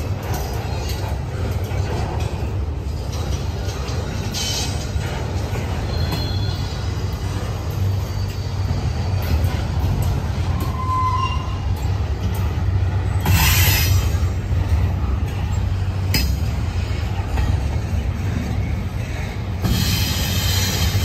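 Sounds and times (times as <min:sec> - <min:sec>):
train wheels rumbling on rail: 0:00.0 - 0:21.0
high-pitched wheel squeal: 0:10.4 - 0:12.0.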